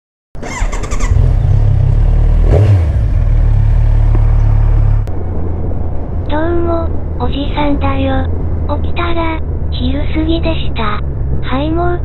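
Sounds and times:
motorcycle engine revving: 0:00.4 - 0:05.1
wind noise: 0:02.4 - 0:12.0.

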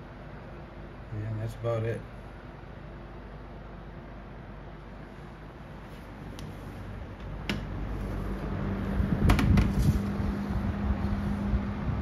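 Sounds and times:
fan motor buzz and rushing air: 0:00.0 - 0:12.0
fan switch click: 0:07.2 - 0:07.8, 0:09.2 - 0:10.2
knocks on fan cabinet: 0:09.2 - 0:09.8.

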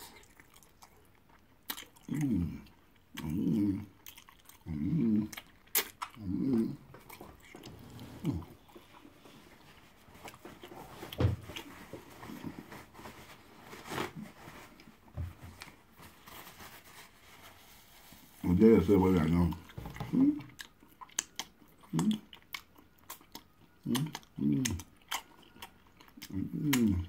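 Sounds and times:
chewing with wet clicks: 0:00.1 - 0:07.7, 0:19.5 - 0:27.0
lip smacks: 0:05.3 - 0:07.7, 0:20.4 - 0:27.0.

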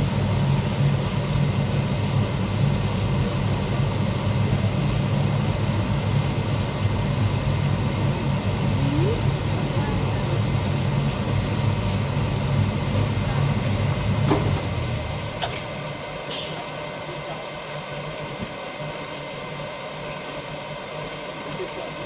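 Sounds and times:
sharp hiss of air: 0:16.3 - 0:16.6.

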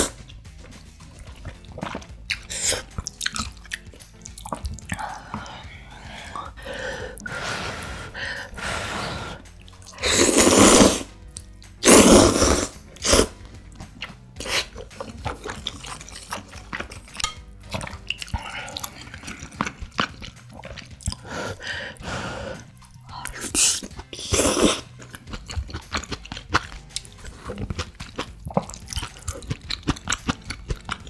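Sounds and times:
soft wet chewing: 0:00.2 - 0:07.3, 0:09.5 - 0:10.0, 0:13.4 - 0:22.0, 0:22.6 - 0:31.0
noodles slurped: 0:01.1 - 0:11.2, 0:11.8 - 0:31.0.

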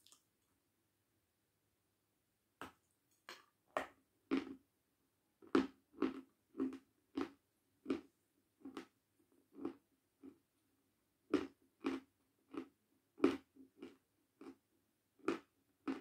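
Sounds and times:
chewing hard crunchy block: 0:03.8 - 0:04.6, 0:11.3 - 0:14.6.

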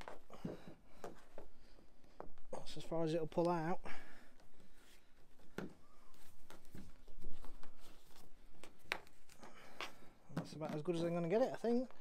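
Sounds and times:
rope rustling and knocking: 0:00.0 - 0:02.5, 0:04.4 - 0:11.1.

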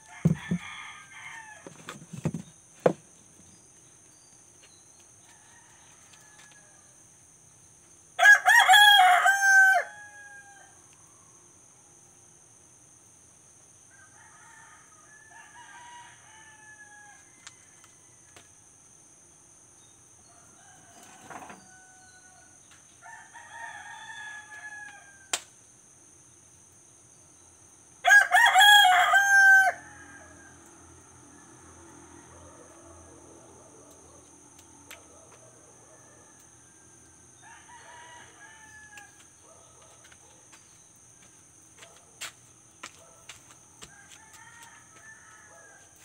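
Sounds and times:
rooster crowing: 0:00.0 - 0:01.8, 0:05.3 - 0:07.0, 0:08.2 - 0:10.8, 0:13.9 - 0:18.3, 0:20.2 - 0:25.3, 0:28.0 - 0:33.9, 0:35.4 - 0:39.6, 0:43.8 - 0:46.0.

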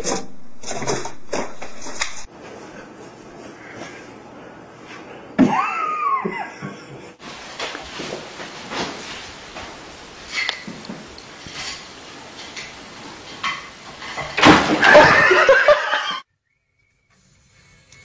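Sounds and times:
person laughing loudly: 0:05.4 - 0:07.2, 0:14.8 - 0:16.2.

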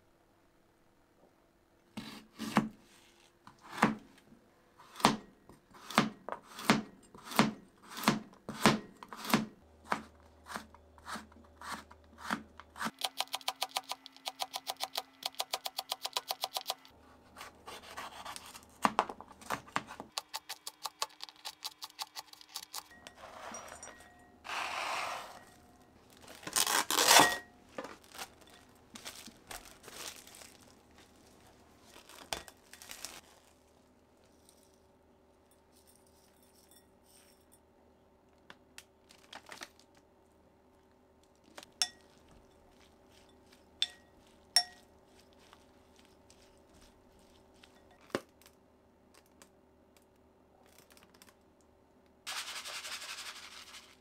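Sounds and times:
utensil clicking against a dish: 0:13.0 - 0:16.9
rustling: 0:22.2 - 0:34.8, 0:41.3 - 0:48.2
tearing or crinkling noise: 0:26.0 - 0:34.8, 0:39.0 - 0:40.0.

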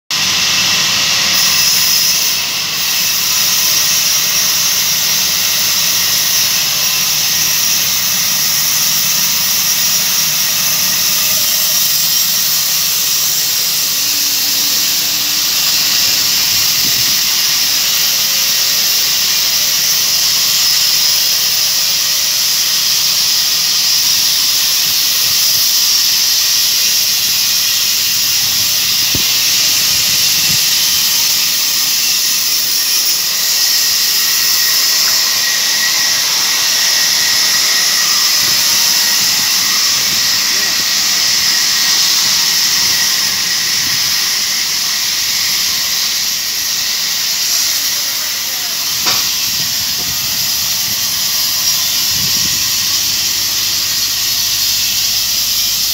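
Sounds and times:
sawmill machinery hissing: 0:00.1 - 0:55.9.

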